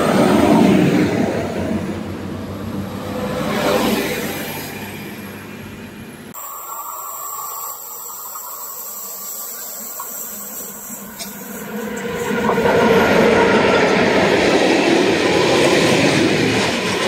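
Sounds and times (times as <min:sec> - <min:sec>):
locomotive and wheel rumble: 0:00.0 - 0:06.4
train passing: 0:00.0 - 0:17.0
steady hiss: 0:06.4 - 0:12.2.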